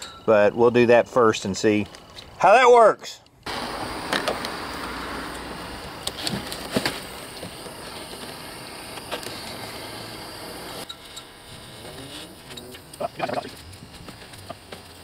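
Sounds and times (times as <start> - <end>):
gas torch hissing: 3.5 - 15.0.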